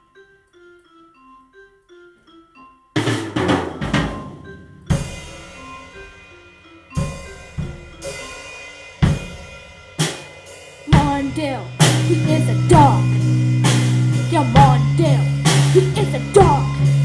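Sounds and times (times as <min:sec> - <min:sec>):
band playing instrumental: 0:03.0 - 0:06.4, 0:10.9 - 0:17.0
drum kit beat: 0:03.0 - 0:17.0.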